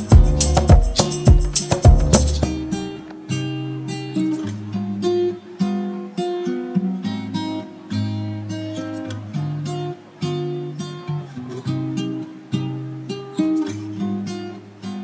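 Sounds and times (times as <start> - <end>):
acoustic guitar plucking a melody: 0.0 - 15.0.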